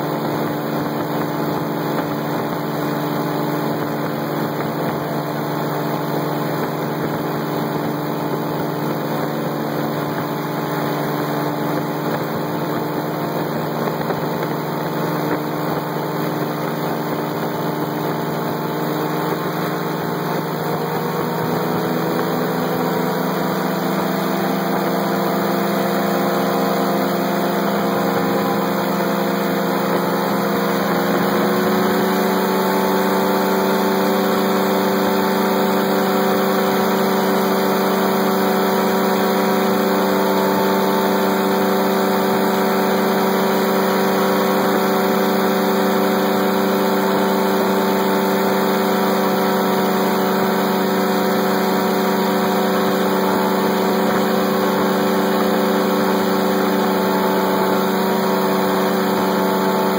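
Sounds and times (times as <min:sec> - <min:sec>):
aircraft engine and propeller: 0:00.0 - 0:59.9.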